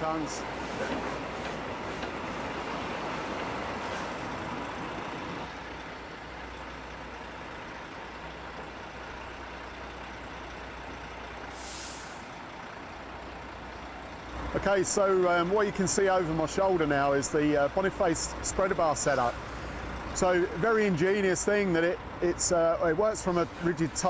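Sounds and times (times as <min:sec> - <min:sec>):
diesel truck engines running: 0:00.0 - 0:24.0
air brake hiss: 0:11.5 - 0:12.3.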